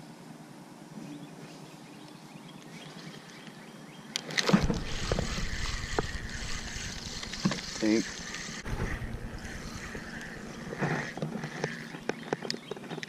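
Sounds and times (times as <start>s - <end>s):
rubbing and rumbling noise: 4.6s - 12.1s.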